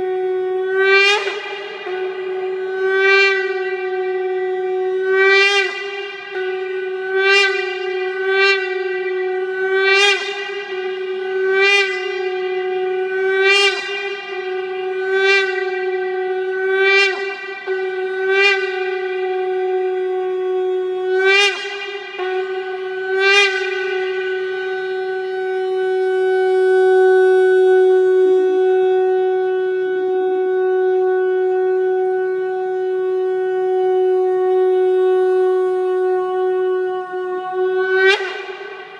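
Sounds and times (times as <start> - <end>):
shofar blowing: 0.0 - 38.9.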